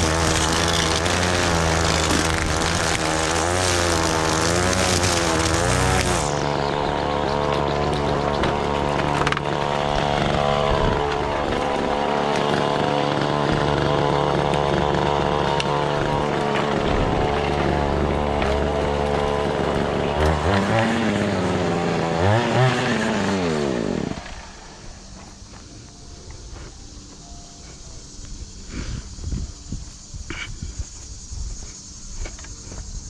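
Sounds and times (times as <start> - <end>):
small petrol engine running: 0.0 - 25.2.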